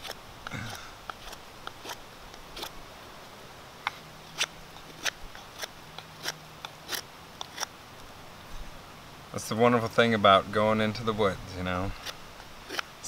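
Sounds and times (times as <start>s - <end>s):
knife shaving wood: 4.4s - 7.7s, 11.9s - 12.9s.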